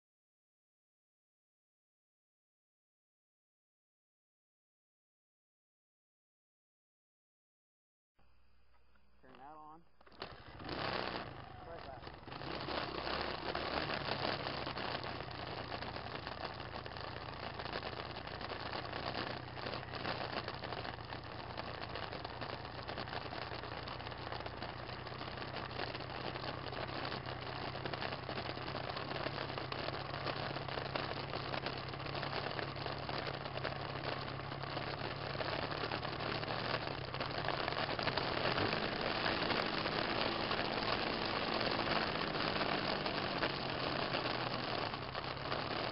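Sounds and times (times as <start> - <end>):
wind and ride noise: 10.0 - 45.9
small vehicle engine running: 10.1 - 45.9.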